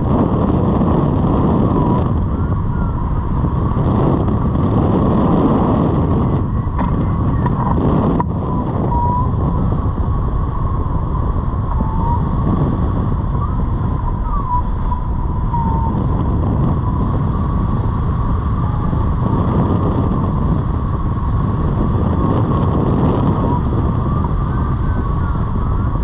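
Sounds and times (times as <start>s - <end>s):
wind noise on microphone: 0.0s - 26.0s
thin wavering whistle: 1.6s - 3.4s, 8.4s - 9.8s, 11.1s - 17.6s.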